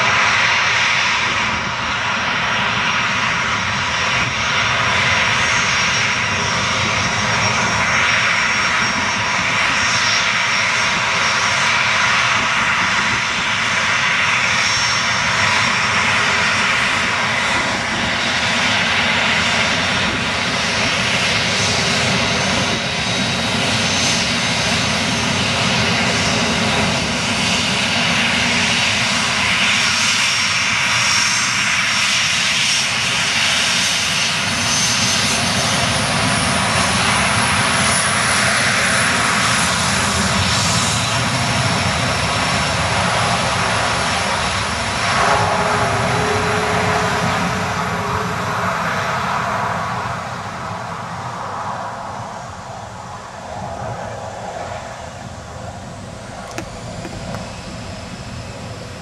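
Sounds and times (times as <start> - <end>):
jet engines at taxi power: 0.0 - 59.0.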